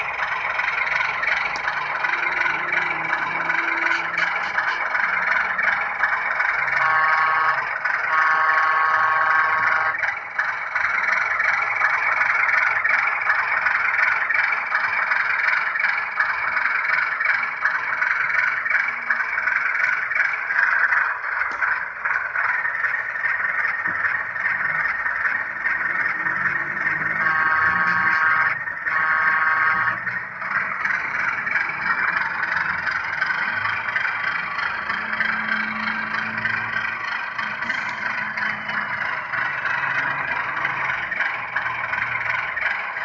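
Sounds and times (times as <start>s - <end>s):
thin model diesel engine sound: 0.0s - 43.0s
locomotive horn blasts: 2.1s - 4.2s, 6.7s - 9.9s.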